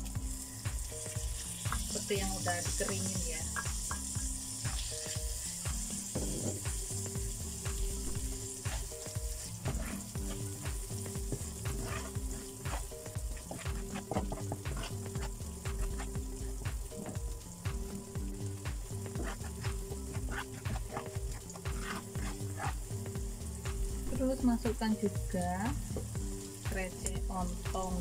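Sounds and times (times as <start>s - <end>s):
background music with bass line: 0.0s - 28.0s
paste sizzling in wok: 0.0s - 28.0s
metal spatula scraping pan: 21.8s - 22.8s.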